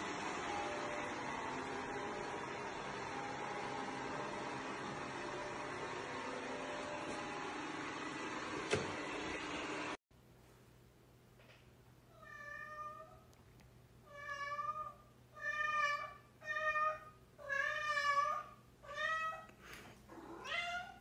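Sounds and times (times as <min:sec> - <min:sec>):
cat meowing: 0:20.2 - 0:21.0.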